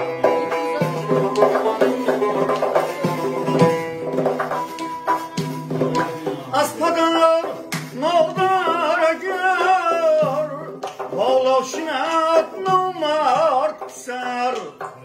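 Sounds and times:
strummed long-necked lute: 0:00.0 - 0:06.8
frame drum strokes: 0:00.0 - 0:15.0
man singing ornamented melody: 0:00.0 - 0:15.0.

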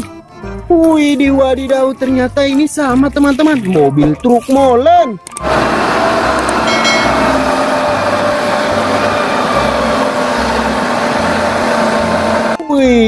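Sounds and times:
road noise: 0:05.4 - 0:12.6
truck diesel engine: 0:05.4 - 0:12.6
low hum: 0:06.5 - 0:10.3.

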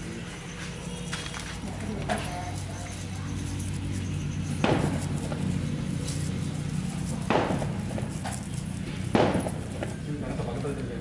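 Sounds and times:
steady low hum: 0:00.0 - 0:11.0
paper tubes knocking on board: 0:04.6 - 0:05.4, 0:07.2 - 0:08.4, 0:09.1 - 0:09.9.

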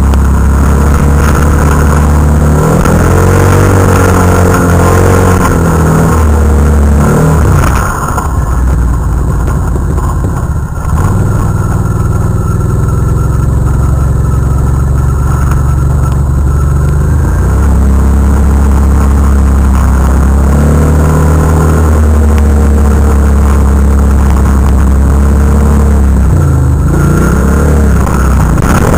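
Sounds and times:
quad bike engine running hard: 0:00.0 - 0:28.9.

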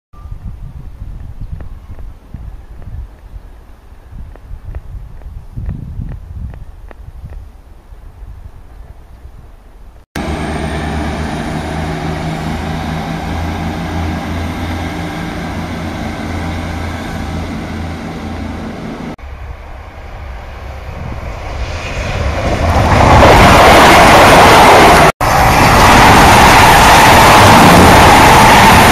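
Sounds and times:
diesel train engine running: 0:10.2 - 0:28.9
train wheels and engine approaching: 0:10.2 - 0:28.9.

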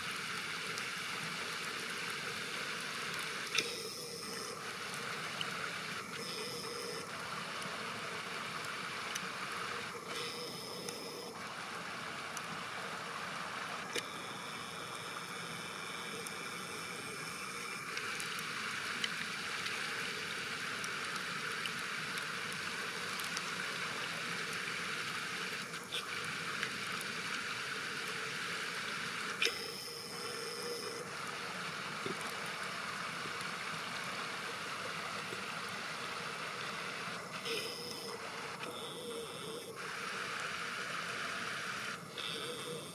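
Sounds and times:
camera zoom motor whir: 0:03.2 - 0:08.2, 0:09.0 - 0:11.5, 0:29.2 - 0:32.5, 0:36.2 - 0:42.9.

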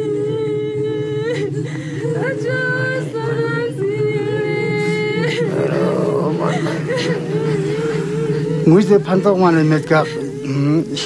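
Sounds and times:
low steady hum: 0:00.0 - 0:11.0
woman wailing: 0:05.2 - 0:08.9.

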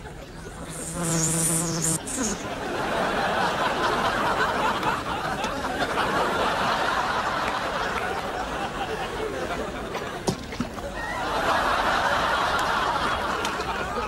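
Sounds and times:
studio audience laughing: 0:02.3 - 0:10.2, 0:11.0 - 0:14.0.

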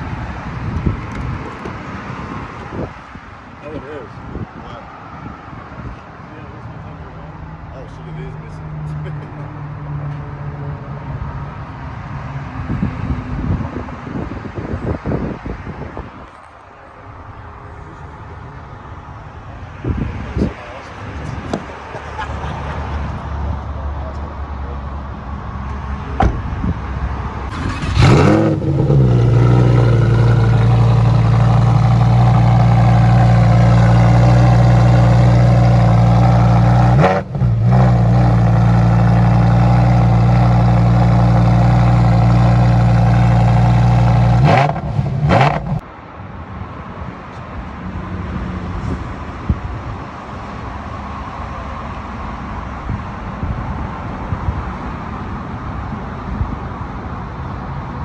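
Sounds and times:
sports car engine revving: 0:27.5 - 0:45.8.

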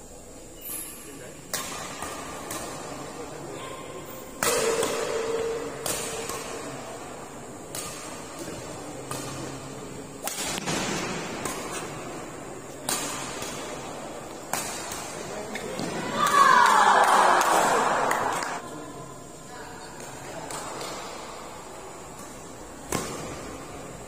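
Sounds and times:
racket hitting shuttlecock: 0:01.5 - 0:03.2, 0:04.4 - 0:18.6, 0:22.1 - 0:24.0
people shouting and cheering: 0:15.6 - 0:18.6.

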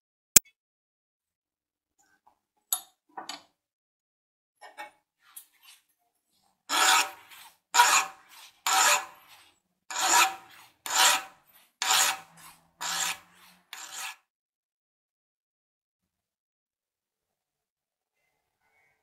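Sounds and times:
metal file rasping on metal: 0:06.7 - 0:14.3.

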